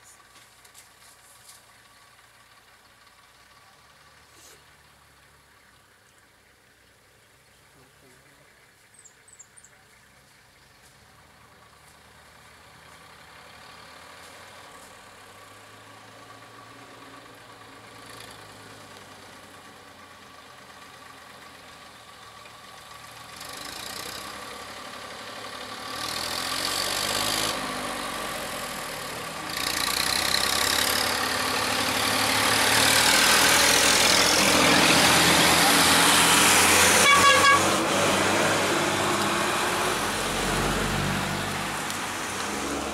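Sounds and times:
vehicles driving past: 0:00.0 - 0:42.9
horn toots: 0:36.7 - 0:38.2.

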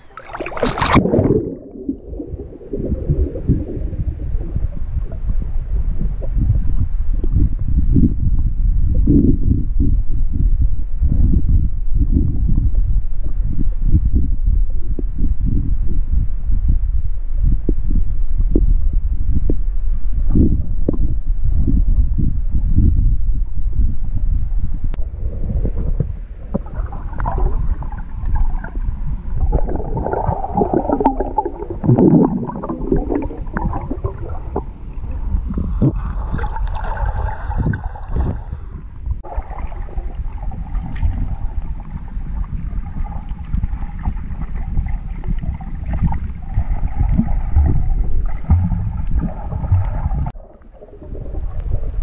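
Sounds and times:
water gurgling and bubbling: 0:00.0 - 0:10.0, 0:25.0 - 0:52.0
muffled underwater rumble: 0:00.0 - 0:52.0.

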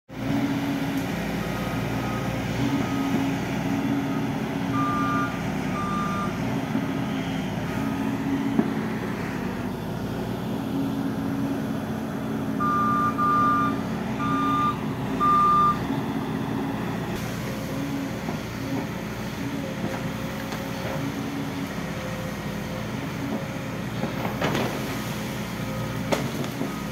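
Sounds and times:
excavator diesel engine running: 0:00.1 - 0:26.9
two-tone warning alarm beeping: 0:04.1 - 0:06.4, 0:12.6 - 0:15.8.

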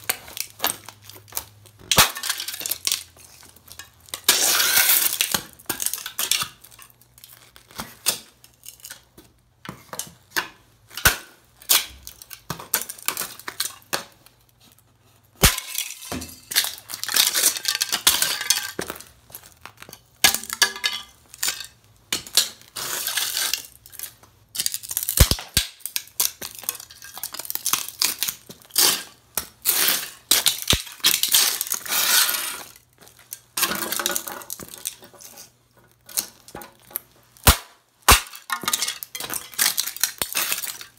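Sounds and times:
debris crunching and scraping: 0:10.9 - 0:40.9.

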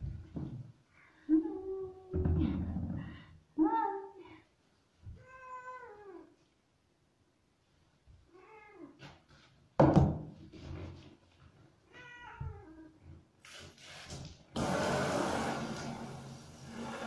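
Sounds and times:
cat meowing: 0:11.9 - 0:12.9.

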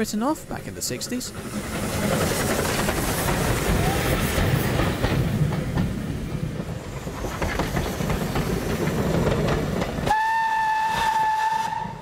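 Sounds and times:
train wheels clattering on rails: 0:01.1 - 0:11.9
steam whistle: 0:10.1 - 0:12.0.

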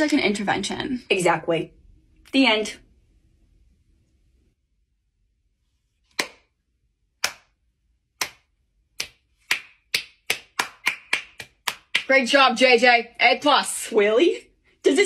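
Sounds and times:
person clapping hands: 0:06.1 - 0:06.5, 0:07.2 - 0:07.5, 0:08.2 - 0:08.4, 0:09.0 - 0:12.1.

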